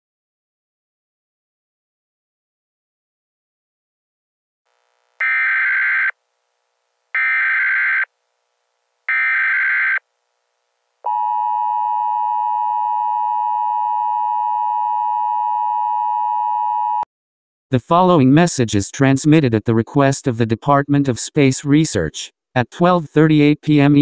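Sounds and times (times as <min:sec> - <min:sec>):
two-tone attention signal: 0:05.2 - 0:06.1
digital data tone bursts: 0:05.2 - 0:06.2, 0:07.2 - 0:08.1.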